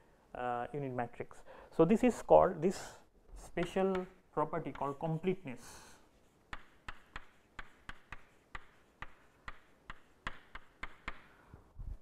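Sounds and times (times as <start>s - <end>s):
chalk tapping on blackboard: 3.4s - 5.6s, 6.2s - 11.3s.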